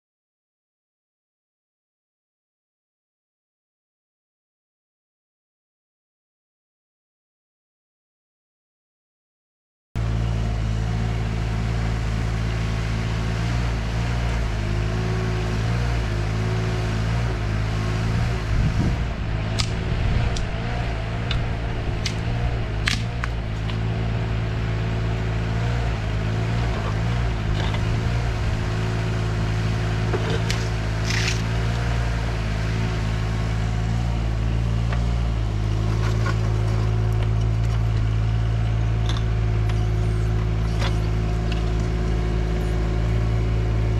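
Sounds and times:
excavator diesel engine running: 0:10.0 - 0:43.9.

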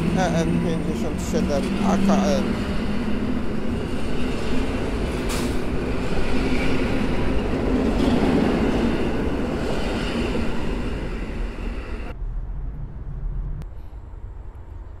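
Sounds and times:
electric train rumbling past: 0:00.0 - 0:15.0
low hum: 0:10.4 - 0:15.0.

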